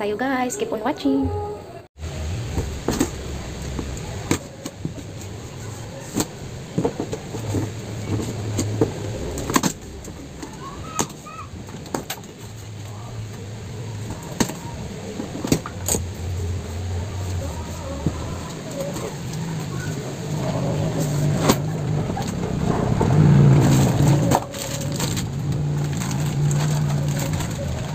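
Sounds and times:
low rumble: 6.4s - 10.9s, 11.5s - 27.9s
packaged goods handled: 17.1s - 27.9s.

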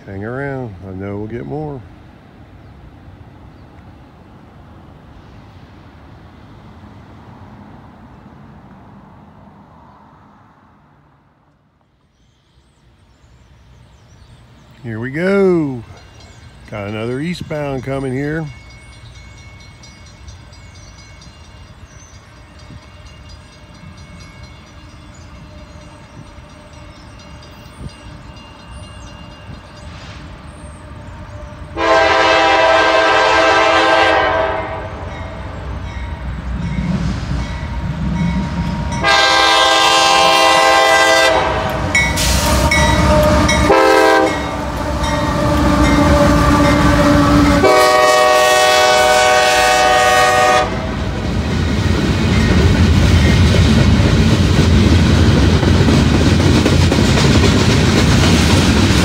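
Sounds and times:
approaching train rumble: 0.0s - 59.0s
locomotive air horn blasts: 31.7s - 35.4s, 38.8s - 51.0s.

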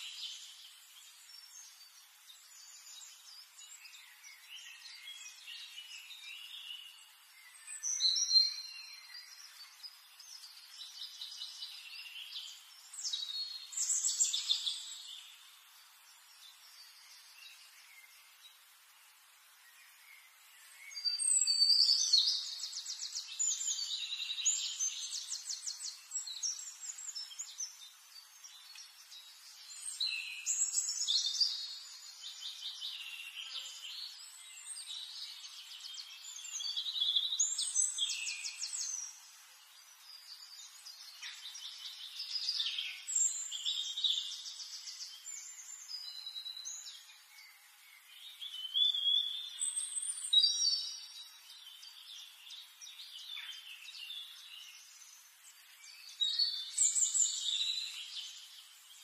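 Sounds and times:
finch chirps: 0.0s - 18.5s, 19.6s - 59.0s
finches trilling song: 0.0s - 59.0s.

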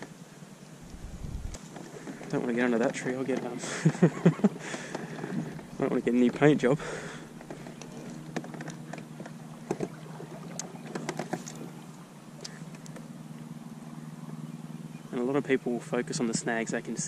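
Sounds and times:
pedal kayak low hum: 0.0s - 17.0s
water against hull: 0.7s - 13.0s
light clicks and knocks: 1.5s - 6.6s, 7.4s - 10.0s, 10.6s - 11.6s.

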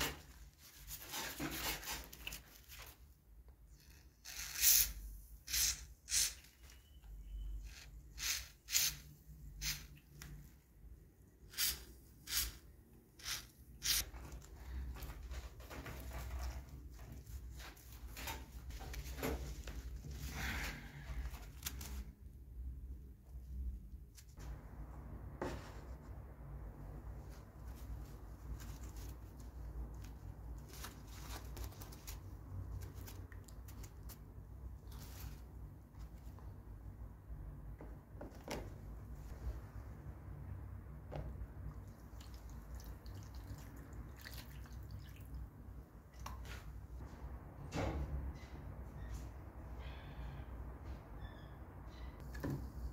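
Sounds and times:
aerosol can spraying: 8.2s - 10.0s, 11.5s - 12.6s, 13.2s - 14.0s
gloves rubbing: 11.4s - 19.0s.

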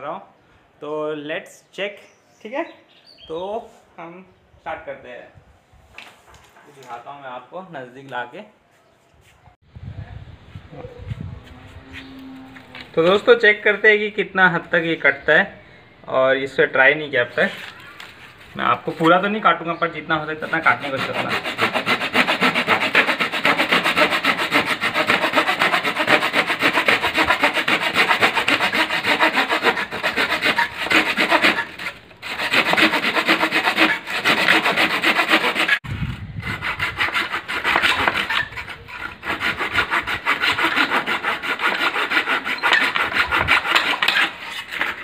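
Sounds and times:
hand saw cutting wood: 20.3s - 45.0s.

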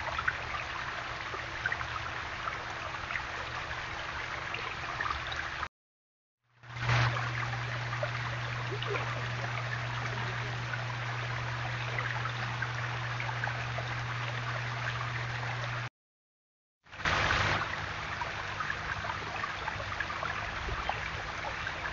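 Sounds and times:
waterfall splashing and trickling: 0.0s - 5.7s, 6.6s - 15.9s, 16.9s - 21.9s
steady low hum: 6.6s - 15.9s, 16.9s - 21.9s.

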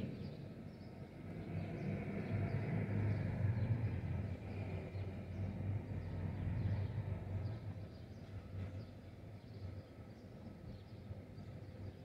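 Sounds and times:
low city rumble: 0.0s - 12.0s.

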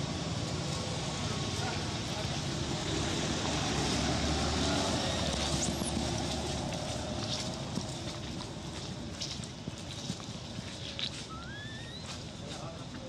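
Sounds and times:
motor vehicle passing: 0.0s - 9.1s
brief high squeak: 11.3s - 12.2s.

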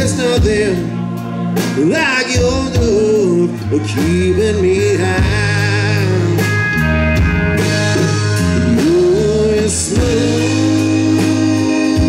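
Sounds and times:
band playing country ballad: 0.0s - 12.0s
person singing: 1.8s - 6.6s, 7.8s - 12.0s.

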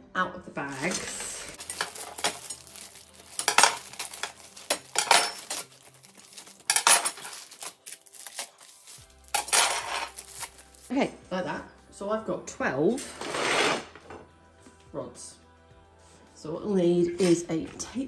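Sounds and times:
metal rods clinking and rattling: 0.7s - 7.7s, 9.3s - 10.2s
plastic bag crinkling: 0.7s - 10.9s.

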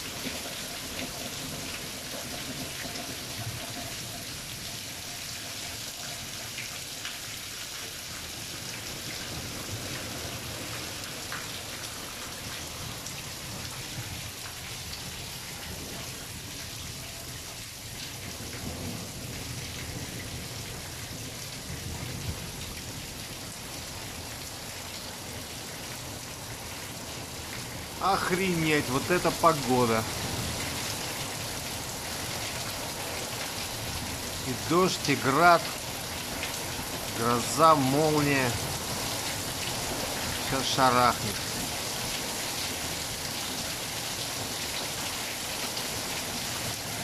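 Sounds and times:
heavy rain pouring: 0.0s - 47.0s
water streaming off roof edge: 0.0s - 47.0s
low rumble of thunder: 18.3s - 23.7s.

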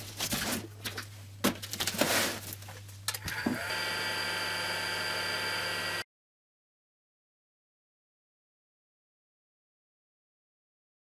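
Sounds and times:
heat gun rushing: 3.2s - 6.0s.

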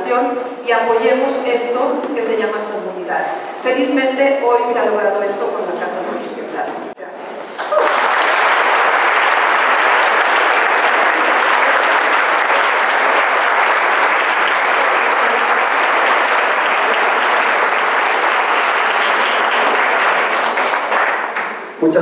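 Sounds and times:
audience applauding: 7.6s - 21.8s.

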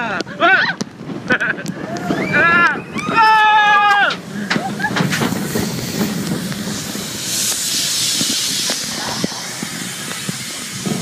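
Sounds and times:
roller coaster rumbling and rattling: 0.0s - 11.0s
loud hiss: 3.6s - 11.0s.

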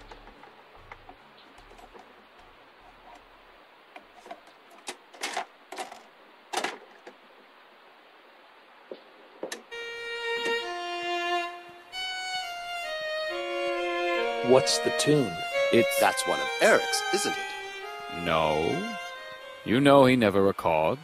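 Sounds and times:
violin playing held notes: 9.7s - 21.0s.

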